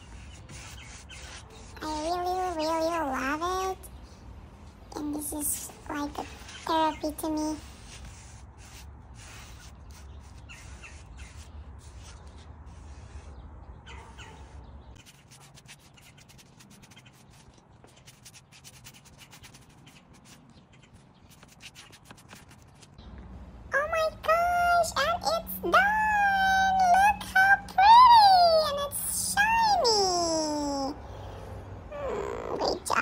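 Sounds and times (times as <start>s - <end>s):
paintbrush rubbing on wood: 0.0s - 2.9s, 6.2s - 13.4s, 14.4s - 22.9s.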